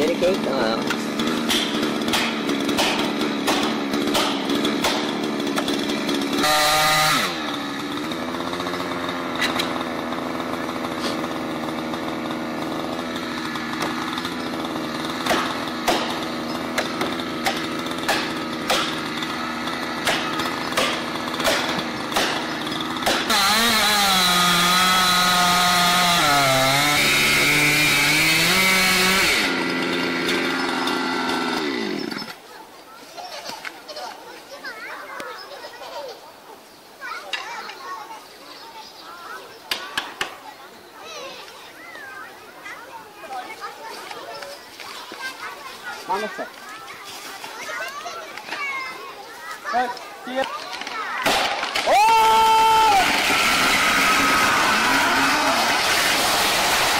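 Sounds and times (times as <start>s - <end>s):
chainsaw running: 0.0s - 32.6s, 49.5s - 56.9s
sharp knocks: 1.4s - 5.7s, 15.2s - 16.2s, 16.8s - 19.0s, 20.0s - 23.4s.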